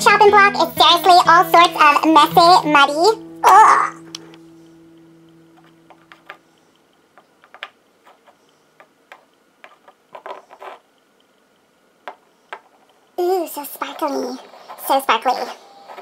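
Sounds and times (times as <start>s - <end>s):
stones tapping on hard surface: 5.6s - 6.4s, 7.2s - 10.8s.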